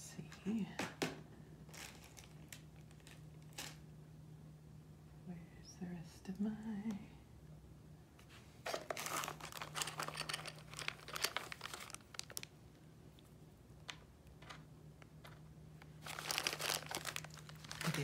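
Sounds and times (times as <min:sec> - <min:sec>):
plastic packaging crinkling: 0:01.7 - 0:03.8, 0:08.6 - 0:12.6, 0:15.2 - 0:18.0.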